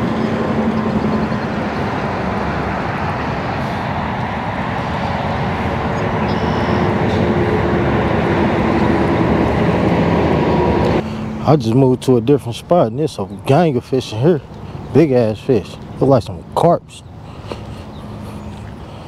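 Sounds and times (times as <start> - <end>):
vehicle road and engine noise: 0.0 - 19.0.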